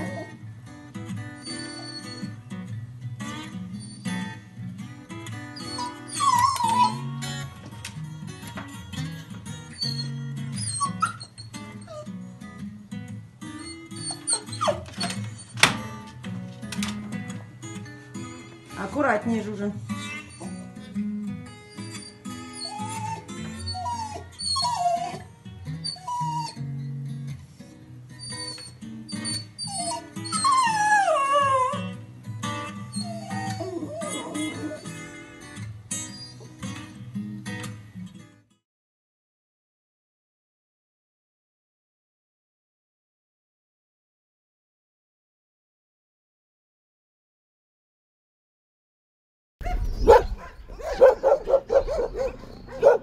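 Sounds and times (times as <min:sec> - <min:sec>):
dog whimpering: 0:00.0 - 0:00.4, 0:01.4 - 0:02.4, 0:05.5 - 0:07.1, 0:09.7 - 0:12.2, 0:13.6 - 0:15.6, 0:20.1 - 0:21.0, 0:21.6 - 0:26.7, 0:28.2 - 0:32.0, 0:32.6 - 0:35.2, 0:36.0 - 0:36.6, 0:49.6 - 0:53.0
dog yelping: 0:00.0 - 0:00.4, 0:01.4 - 0:02.4, 0:05.5 - 0:07.1, 0:09.7 - 0:12.2, 0:13.6 - 0:15.6, 0:20.1 - 0:20.8, 0:21.6 - 0:26.6, 0:28.2 - 0:31.9, 0:32.9 - 0:35.1, 0:49.6 - 0:53.0
guitar music: 0:00.0 - 0:38.5, 0:49.7 - 0:53.0.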